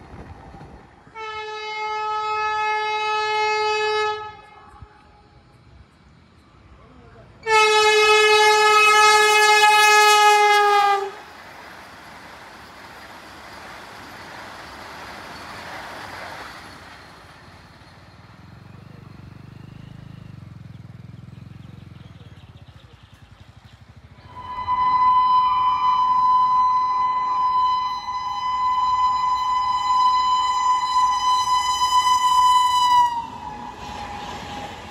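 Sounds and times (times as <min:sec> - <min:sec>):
rush of passing train: 0:00.0 - 0:21.6, 0:22.4 - 0:34.9
train horn blast: 0:01.1 - 0:05.1, 0:07.4 - 0:11.3, 0:24.2 - 0:34.9
loud steady held pitches: 0:24.2 - 0:34.2.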